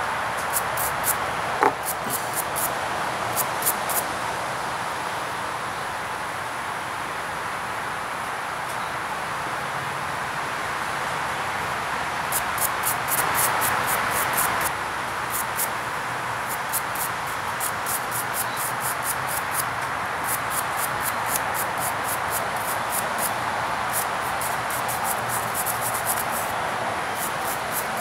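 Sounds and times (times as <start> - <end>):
background hiss: 0.0 - 8.9, 11.7 - 28.0
insects chirping: 0.4 - 4.0, 12.3 - 28.0.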